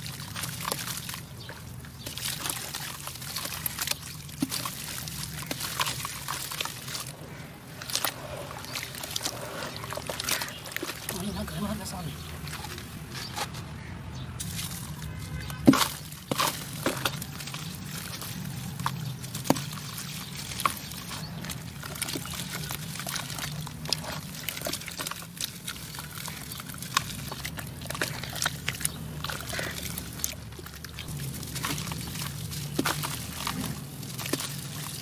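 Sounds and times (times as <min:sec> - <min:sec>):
clay splats: 0:00.0 - 0:07.2
hands squelching wet clay: 0:00.0 - 0:35.0
muddy water sloshing: 0:00.0 - 0:35.0.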